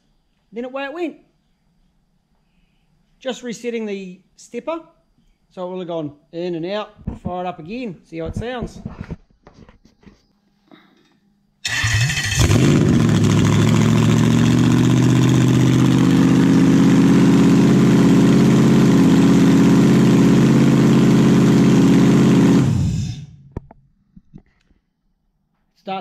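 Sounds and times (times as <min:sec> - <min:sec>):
engine starter cranking: 0:11.6 - 0:13.9
car engine idling: 0:11.7 - 0:23.4.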